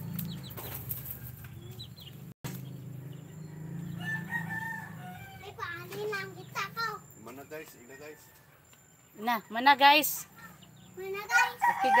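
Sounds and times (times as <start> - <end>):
rooster crowing: 3.4 - 5.7, 7.8 - 8.6, 11.4 - 12.0.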